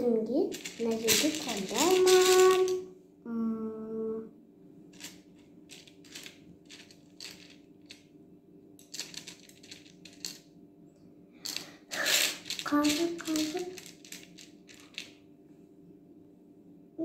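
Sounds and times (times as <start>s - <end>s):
plastic beads clicking and rattling: 0.5s - 2.8s, 4.9s - 8.0s, 8.8s - 10.4s, 11.4s - 15.1s.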